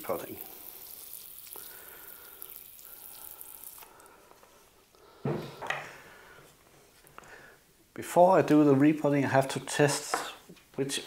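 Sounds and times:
water spraying from hose nozzle: 0:00.0 - 0:03.9.

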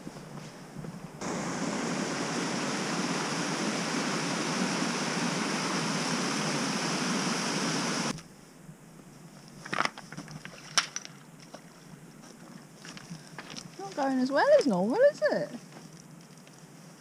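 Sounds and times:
river water rushing over rocks: 0:01.2 - 0:08.1.

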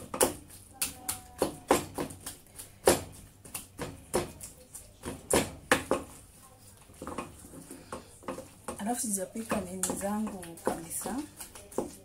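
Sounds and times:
wooden spoon knocking in a pot: 0:00.0 - 0:04.4, 0:05.0 - 0:06.1, 0:07.0 - 0:12.0.

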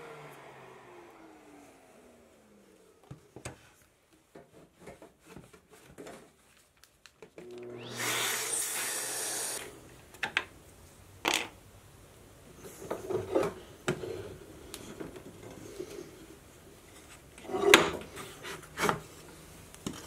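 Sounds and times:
shop vacuum running: 0:00.0 - 0:03.4, 0:07.4 - 0:09.9.

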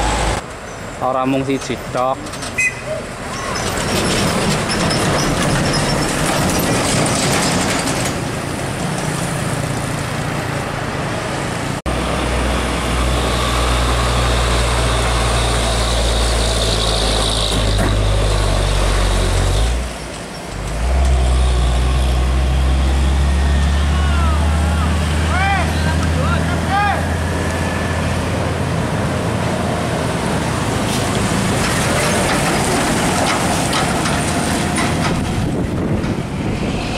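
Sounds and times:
diesel trucks passing: 0:00.0 - 0:36.9
tyre and road noise: 0:00.0 - 0:36.9
low truck engine drone: 0:08.3 - 0:36.9.

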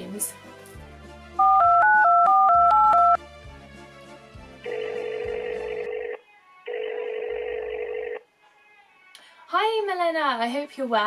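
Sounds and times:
soft background music: 0:00.0 - 0:11.0
keypad dialling beeps: 0:01.4 - 0:03.2
phone ringing tone: 0:01.4 - 0:03.2, 0:04.7 - 0:08.2.

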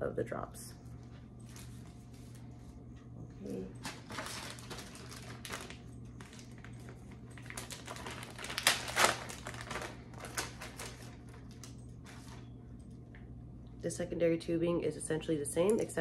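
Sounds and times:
plastic packaging crinkling: 0:03.8 - 0:12.5.

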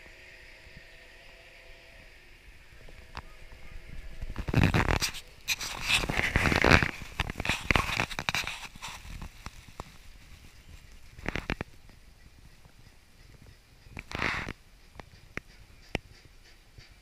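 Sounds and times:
glove rubbing on microphone: 0:04.2 - 0:11.8, 0:14.0 - 0:14.6.

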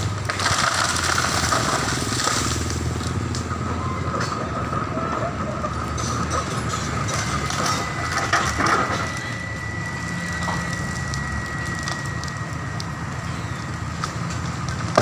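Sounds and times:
sharp wood cracks: 0:00.0 - 0:03.5, 0:10.3 - 0:15.0
branches and leaves crackling: 0:00.0 - 0:03.6, 0:07.0 - 0:15.0
excavator engine running: 0:00.0 - 0:15.0
thin steady whine: 0:06.4 - 0:15.0.

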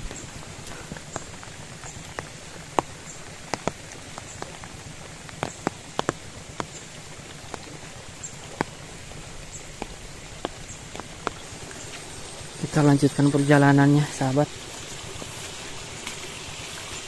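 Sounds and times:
sharp taps and knocks: 0:00.0 - 0:12.0
steady background hiss: 0:00.0 - 0:17.0.

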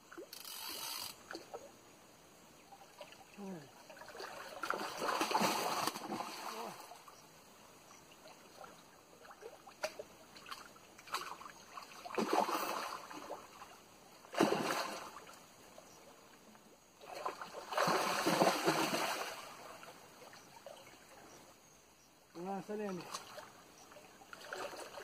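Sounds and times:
faint ticks: 0:00.1 - 0:01.7
fish splashing at water surface: 0:04.0 - 0:06.8, 0:09.7 - 0:13.4, 0:14.3 - 0:15.2, 0:17.2 - 0:19.7.

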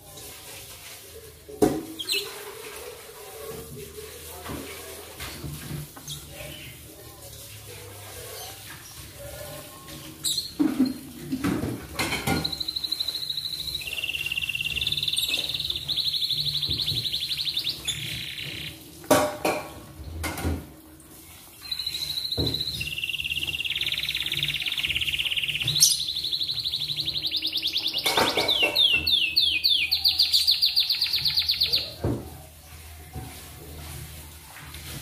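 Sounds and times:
canary singing trills: 0:12.2 - 0:18.8, 0:21.6 - 0:32.0.

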